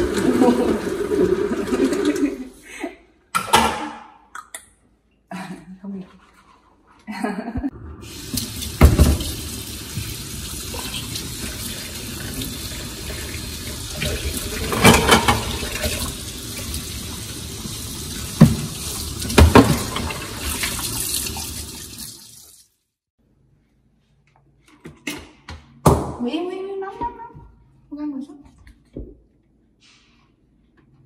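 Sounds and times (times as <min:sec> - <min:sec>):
water running from tap: 0:00.0 - 0:02.4, 0:08.0 - 0:22.8.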